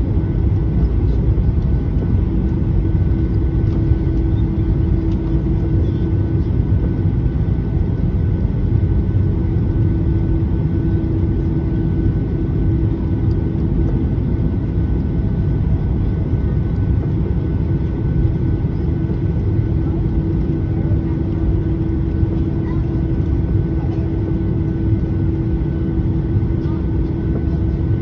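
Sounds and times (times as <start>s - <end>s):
airplane cabin engine rumble: 0.0s - 28.0s.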